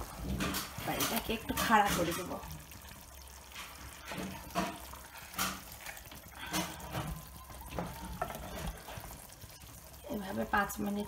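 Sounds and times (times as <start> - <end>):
spatula scraping a pot: 8.1 - 9.5.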